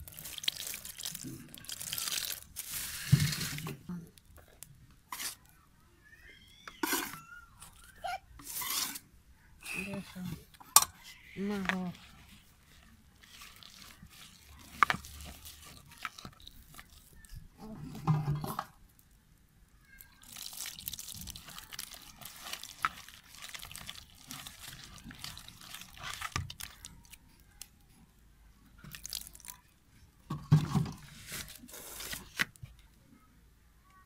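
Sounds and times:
wet crunchy mixing in bowl: 0.0 - 5.5, 9.7 - 19.0, 20.2 - 27.7, 28.8 - 29.6.

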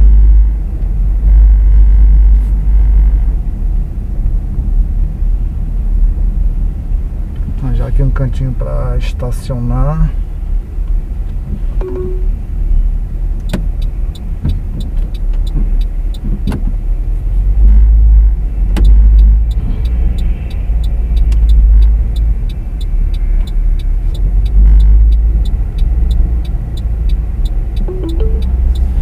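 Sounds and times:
car engine and road rumble: 0.0 - 29.0
light ticking: 13.4 - 16.3, 18.7 - 29.0.

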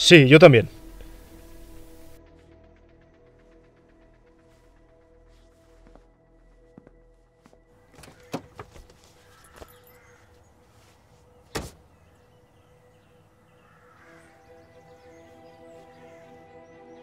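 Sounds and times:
faint music with held tones: 0.0 - 17.0
car door shutting: 8.0 - 9.0, 11.5 - 11.8.

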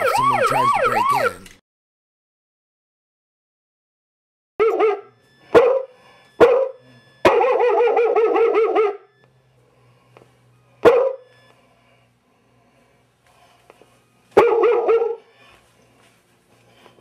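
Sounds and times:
recorded dog barking: 4.6 - 9.1, 10.8 - 11.2, 14.4 - 15.3.

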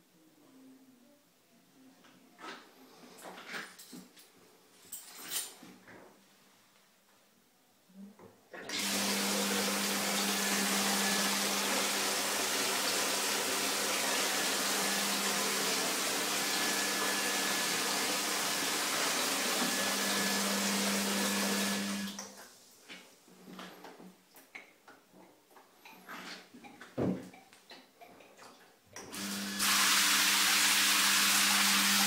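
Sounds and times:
water rushing into bath: 8.7 - 22.1, 29.2 - 32.0.

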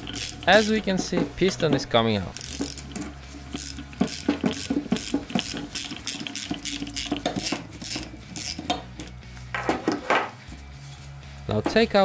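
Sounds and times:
hand ratchet clicking: 0.0 - 0.9, 2.4 - 9.2.

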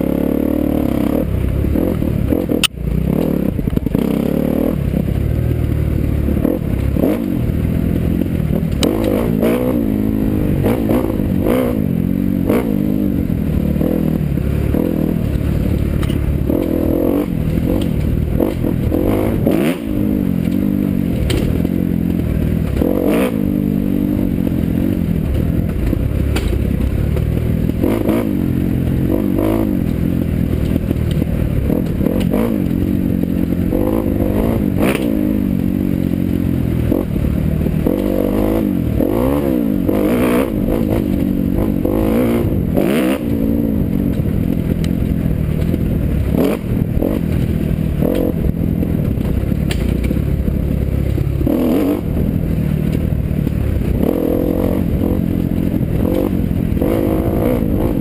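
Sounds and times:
dirt bike engine revving: 0.0 - 58.0
sharp knocks and rattles: 14.7 - 19.5, 20.3 - 21.8, 25.2 - 28.2, 47.2 - 51.5.

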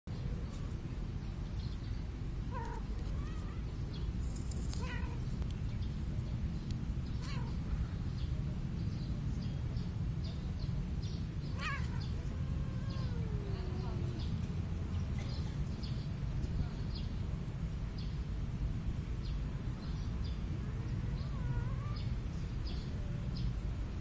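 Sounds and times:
steady low rumble: 0.1 - 24.0
cat meowing: 11.5 - 14.2, 21.1 - 22.1.

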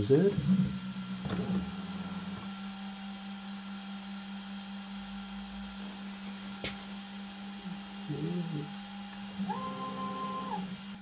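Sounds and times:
machine electrical hum: 0.0 - 11.0.

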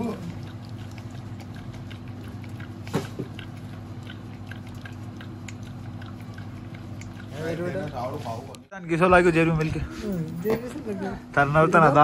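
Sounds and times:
dog lapping from metal bowl: 0.0 - 8.6
steady low hum: 0.0 - 12.0.

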